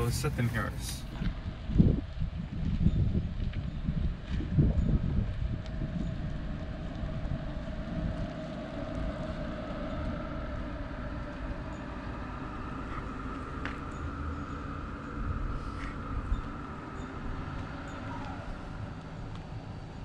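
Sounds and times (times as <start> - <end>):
tyres rumbling on asphalt: 0.0 - 2.3.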